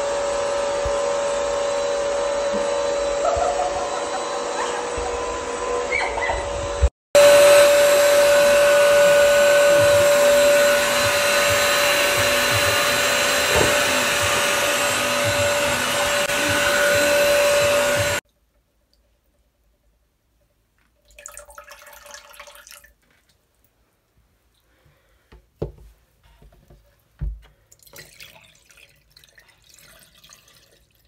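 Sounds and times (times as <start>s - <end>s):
vacuum motor whine and suction: 0.0s - 18.2s.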